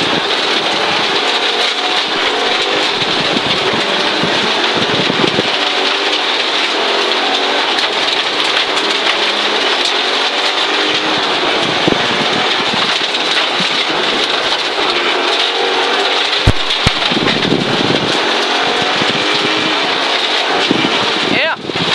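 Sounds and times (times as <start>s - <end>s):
gravel hitting car underside: 0.0s - 21.9s
rally car engine running hard: 0.0s - 21.9s
sharp knocks: 16.4s - 17.7s.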